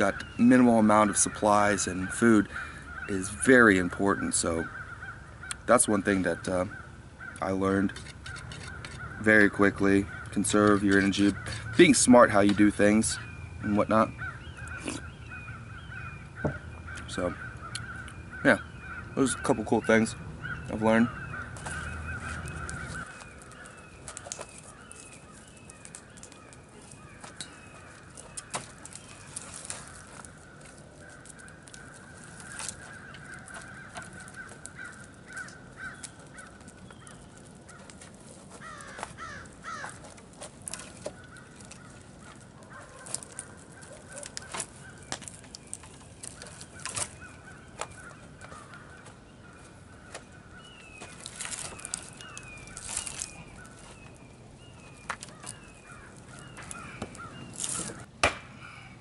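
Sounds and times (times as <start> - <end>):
birds calling: 0.0 - 59.0
wooden logs knocking: 55.0 - 58.5.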